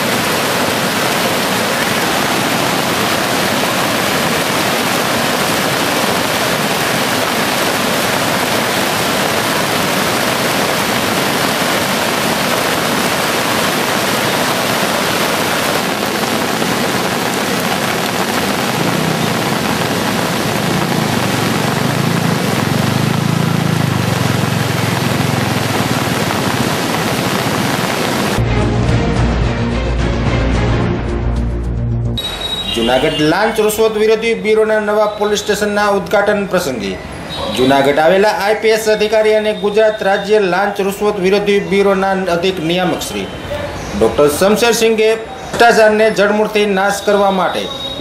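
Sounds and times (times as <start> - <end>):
river rushing: 0.0 - 28.4.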